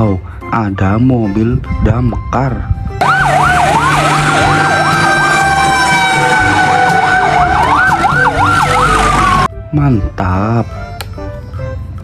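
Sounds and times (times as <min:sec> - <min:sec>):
fast yelping siren: 0:03.0 - 0:09.5
wailing siren: 0:03.0 - 0:09.5.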